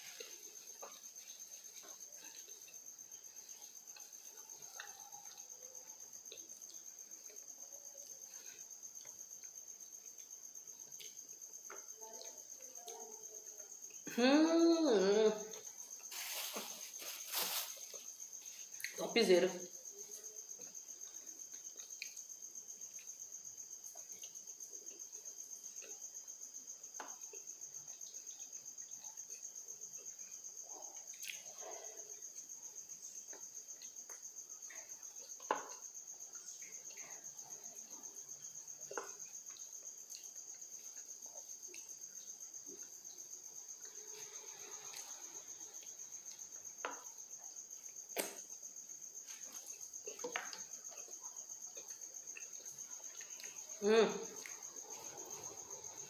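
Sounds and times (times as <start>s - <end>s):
cricket trilling: 0.0s - 56.0s
person chewing food: 20.5s - 26.2s, 31.0s - 31.5s, 33.1s - 56.0s.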